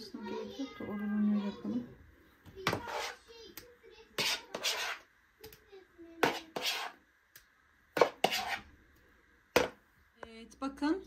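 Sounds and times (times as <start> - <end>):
spoon scraping plastic bowl: 2.7 - 3.2, 4.2 - 5.1, 6.2 - 7.0, 8.0 - 8.7.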